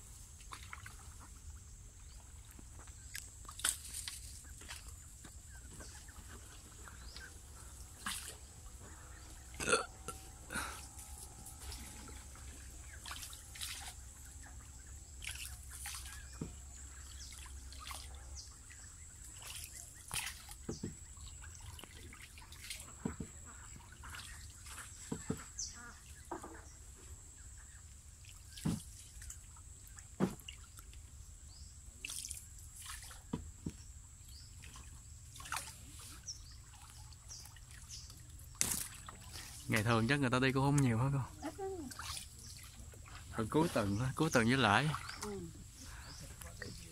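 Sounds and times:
paddle splashing in water: 0.0s - 1.4s, 2.1s - 27.0s, 28.1s - 46.9s.

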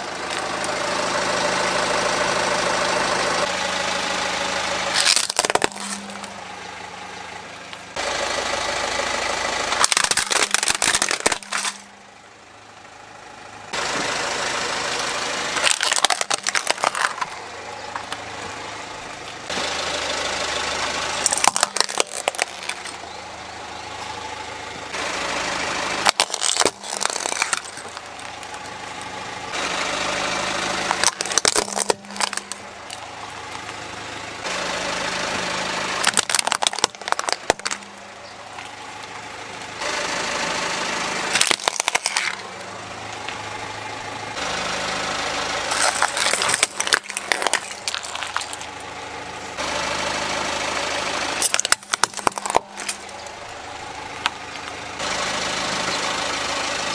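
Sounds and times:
car engine idling: 0.0s - 56.9s
tyre crushing plastic objects: 4.9s - 6.4s, 9.7s - 11.9s, 15.6s - 17.4s, 21.2s - 23.0s, 26.0s - 29.2s, 30.7s - 33.8s, 36.0s - 38.0s, 41.3s - 42.4s, 45.7s - 48.8s, 51.4s - 53.3s.

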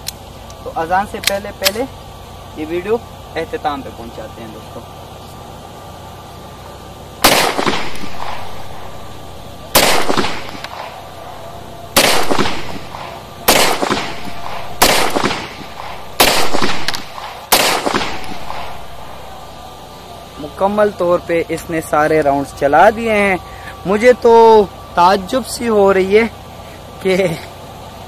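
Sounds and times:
pistol shots: 7.2s - 19.8s.

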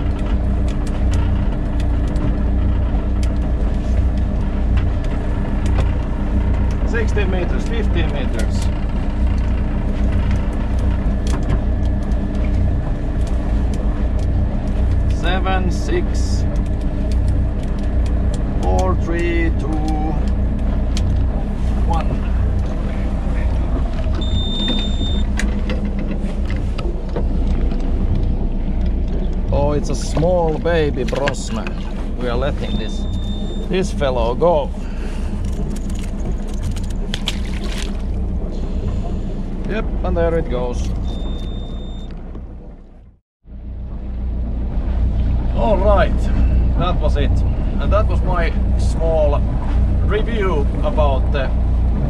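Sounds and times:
electric reel motor humming: 0.0s - 42.9s
boat engine idling: 0.0s - 52.0s
high beep: 24.2s - 25.3s, 32.6s - 33.7s, 41.0s - 42.1s.

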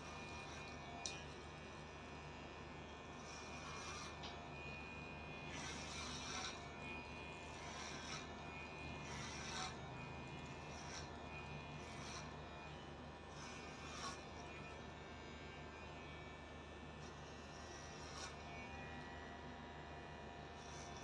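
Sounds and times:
clipper blades cutting hair: 0.0s - 1.4s, 5.5s - 8.4s
electric hair clippers humming: 0.0s - 21.0s.

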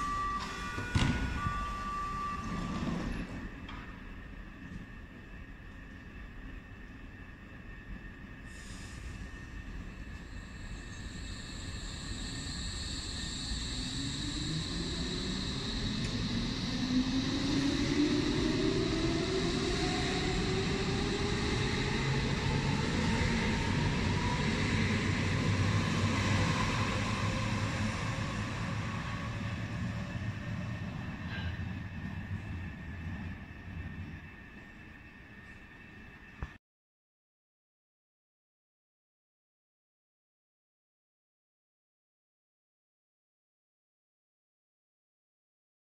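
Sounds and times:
electric train traction whine: 0.0s - 36.5s.

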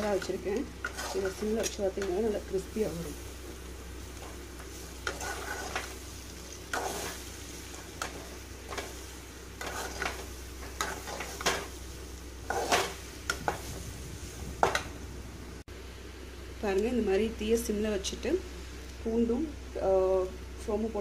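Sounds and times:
metal spatula scraping a pan: 0.0s - 2.1s, 5.0s - 9.0s, 9.6s - 11.7s, 12.5s - 13.7s
faint sizzle of frying: 0.0s - 21.0s
spatula clanking on metal: 9.6s - 11.7s.

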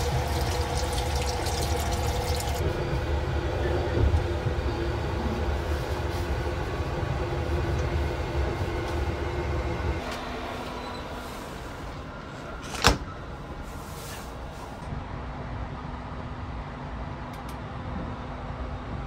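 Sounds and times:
train rumble and hum: 0.0s - 19.0s.

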